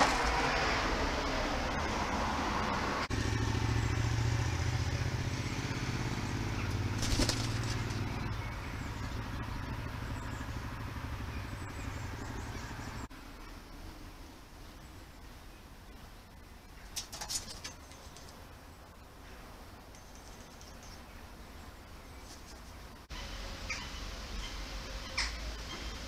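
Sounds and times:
low engine rumble: 0:00.0 - 0:16.8
sharp rustle: 0:07.0 - 0:08.0, 0:16.8 - 0:18.4, 0:22.2 - 0:22.9.

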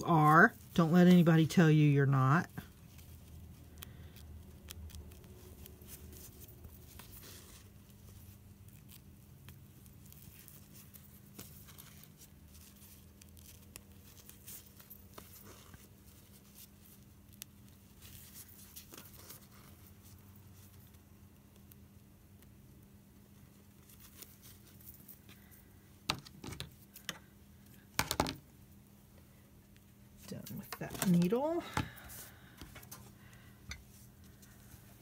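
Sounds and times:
needle and thread through cloth: 0:00.0 - 0:28.1, 0:29.6 - 0:35.0
low steady hum: 0:00.0 - 0:35.0
fabric rustling: 0:05.2 - 0:21.2, 0:30.1 - 0:35.0.

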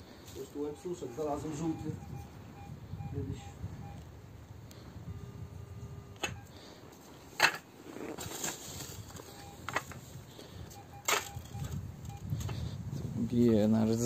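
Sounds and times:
metal detector beeps: 0:00.4 - 0:04.0, 0:05.0 - 0:06.7, 0:09.2 - 0:10.0, 0:10.6 - 0:12.6
sand rustling: 0:07.8 - 0:09.4.

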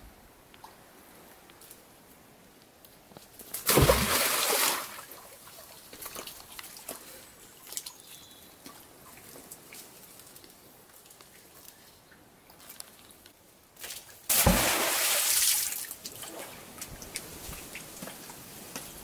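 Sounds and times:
heavy splash into water: 0:03.6 - 0:05.1, 0:14.3 - 0:16.6
water sloshing and dripping: 0:03.6 - 0:10.3, 0:13.8 - 0:18.6.

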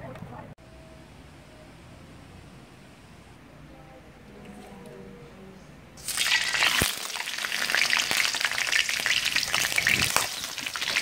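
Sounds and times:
oil sizzling and spattering: 0:06.0 - 0:11.0
prawn dropping into hot oil: 0:06.0 - 0:11.0.

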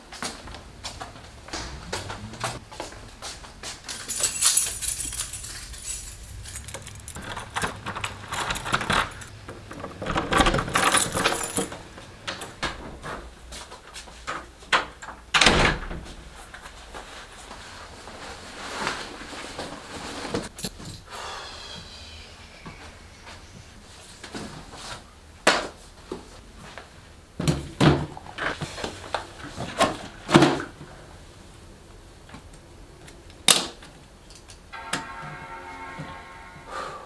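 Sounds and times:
keys jangling: 0:03.9 - 0:09.3, 0:10.1 - 0:12.6.

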